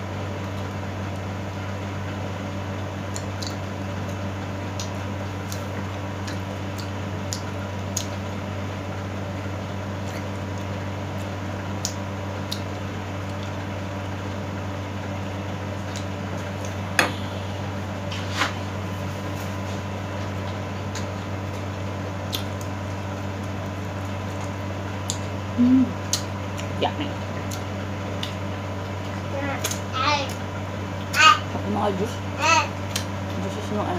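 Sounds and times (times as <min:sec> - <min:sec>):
steady background hum: 0:00.0 - 0:33.9
wet chewing clicks: 0:04.7 - 0:08.2, 0:11.8 - 0:13.6, 0:22.2 - 0:22.8, 0:24.3 - 0:25.4, 0:26.0 - 0:26.8, 0:27.4 - 0:28.4
lip smacks: 0:06.3 - 0:08.1, 0:11.8 - 0:12.7, 0:22.3 - 0:22.7, 0:26.0 - 0:26.7.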